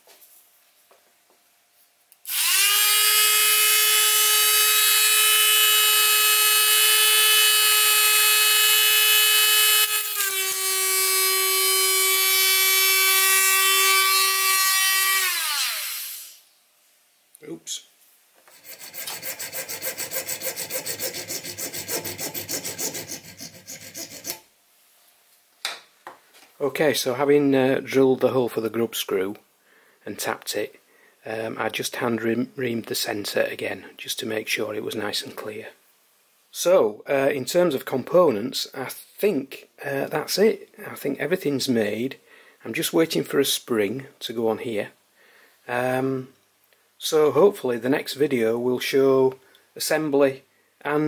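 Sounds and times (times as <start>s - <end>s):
rotary tool high-pitched whine: 2.3s - 16.4s, 18.5s - 24.4s
hacksaw rasping through brass rod: 18.5s - 24.4s.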